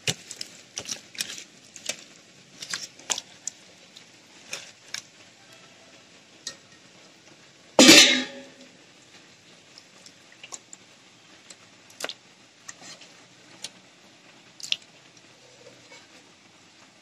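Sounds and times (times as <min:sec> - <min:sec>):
wet squishing of meat in marinade: 0:00.0 - 0:05.6, 0:09.1 - 0:16.3.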